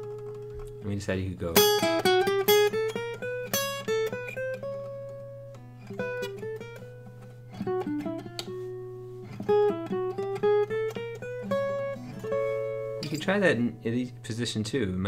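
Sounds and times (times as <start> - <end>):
acoustic guitar plucked notes: 0.0 - 14.8.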